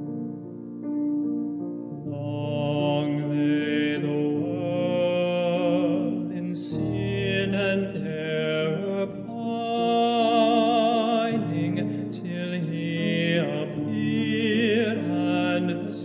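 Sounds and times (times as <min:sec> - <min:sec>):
man singing with vibrato: 0:02.0 - 0:16.0.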